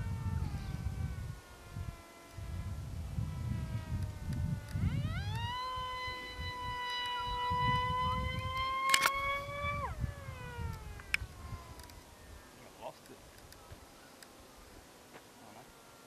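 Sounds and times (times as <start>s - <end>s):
model plane motor whining: 0.0s - 12.4s
wind rumble on microphone: 0.0s - 12.4s
brief crackle: 8.6s - 9.3s.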